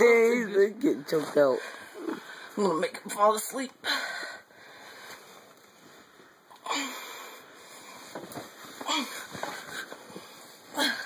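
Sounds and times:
boy wheezing and breathing hard: 6.6 - 8.0, 8.7 - 11.0.

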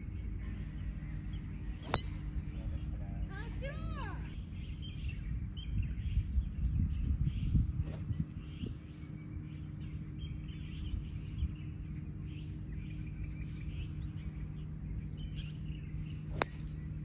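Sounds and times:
wind rumbling on microphone: 0.0 - 12.1
birds chirping: 0.0 - 17.0
steady low hum: 0.0 - 17.0.

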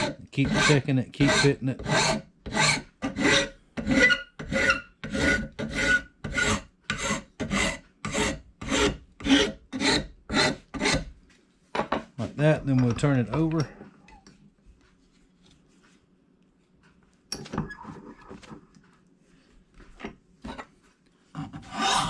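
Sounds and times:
hand file rasping on wood: 0.0 - 11.1, 21.4 - 22.0.

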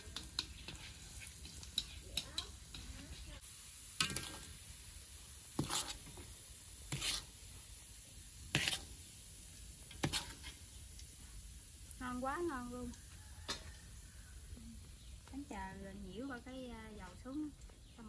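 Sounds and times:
faint steady hiss: 0.0 - 18.0
utensil scraping cookware: 5.6 - 6.3, 6.9 - 7.4, 8.5 - 9.0, 9.9 - 10.6.

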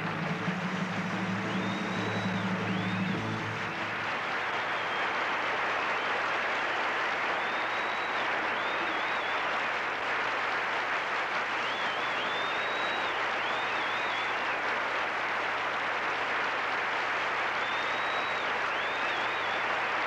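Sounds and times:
audience applauding: 0.0 - 20.0
high wavering whistles: 0.8 - 3.9.

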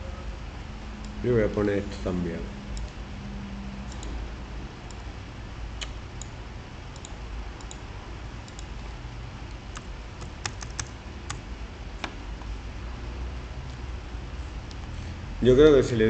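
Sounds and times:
steady low hum: 0.0 - 16.0
keyboard keystrokes: 9.7 - 11.4.

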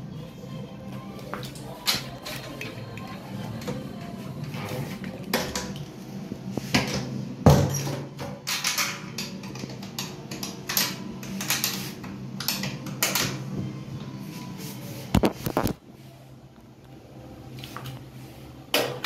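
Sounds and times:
music playing: 0.0 - 7.4
clatter of dishes and cutlery: 6.8 - 11.8.

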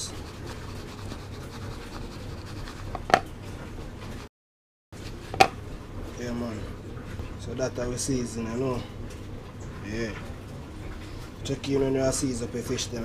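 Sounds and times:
seasoning shaken in plastic tub: 0.0 - 3.1.

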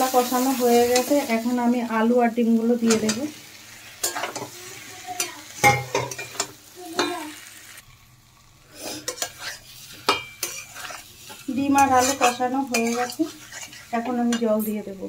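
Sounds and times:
light sizzling: 0.0 - 15.0
metal spatula scraping a pan: 2.9 - 4.6, 8.8 - 14.8.

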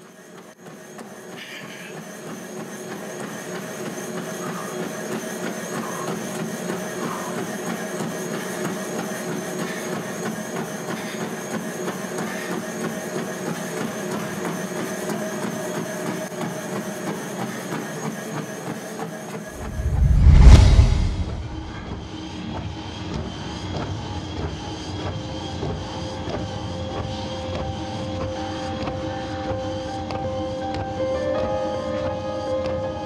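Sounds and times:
machine-like hum: 19.6 - 22.1.

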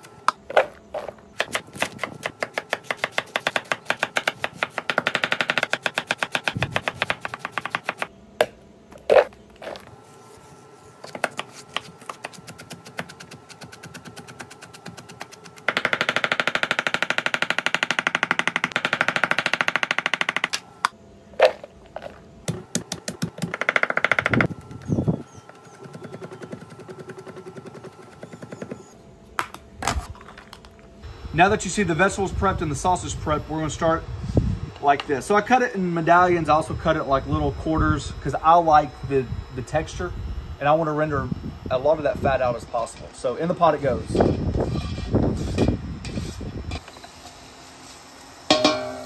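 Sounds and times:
knife chopping on wooden board: 1.4 - 8.6.

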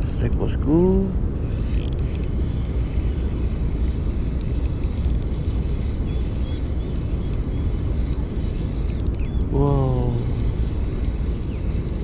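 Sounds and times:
wind rumbling on microphone: 0.0 - 12.0
fishing reel ticking: 1.7 - 2.8, 4.4 - 7.4, 8.8 - 9.4.

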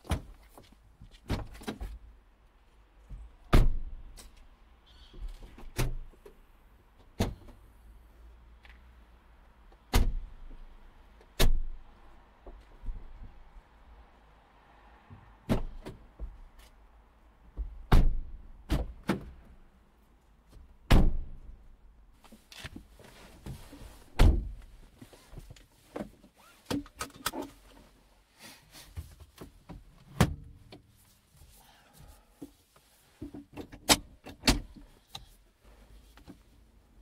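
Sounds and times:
clicks and knocks in car cabin: 33.2 - 35.3.

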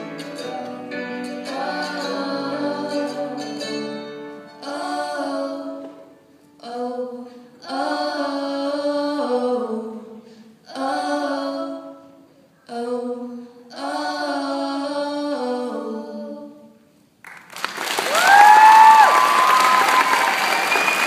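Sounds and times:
two women singing in harmony: 0.0 - 16.9
audience applause: 17.2 - 21.0
audience whistling: 18.1 - 21.0.

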